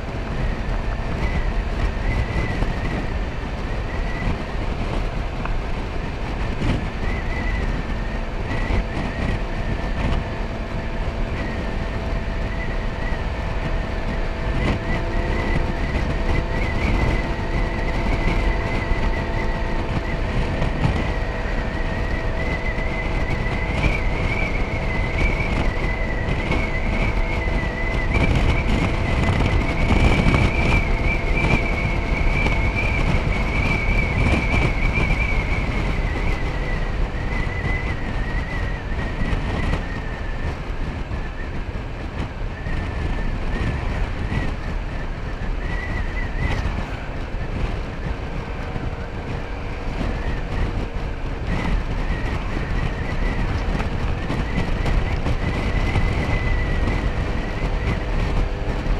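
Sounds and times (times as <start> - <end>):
high rising whine: 0.0 - 58.9
scooter engine drone: 0.0 - 58.9
wind and road noise: 0.0 - 58.9.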